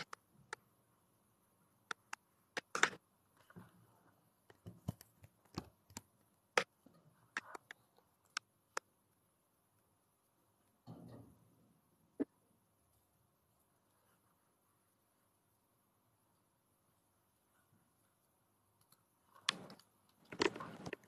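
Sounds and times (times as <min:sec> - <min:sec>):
sharp clicks and pops: 0:00.0 - 0:00.7, 0:01.8 - 0:03.6, 0:04.4 - 0:09.0, 0:18.7 - 0:21.0.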